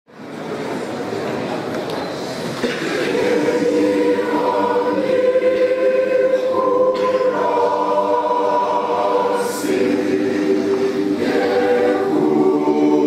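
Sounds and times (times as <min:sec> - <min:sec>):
mixed choir singing a hymn: 0:02.6 - 0:13.0.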